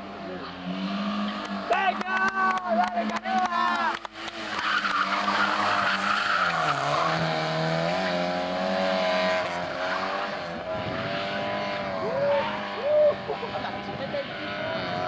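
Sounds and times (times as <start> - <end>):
car engine revving: 0.0 - 15.0
tyre squeal: 4.6 - 7.2.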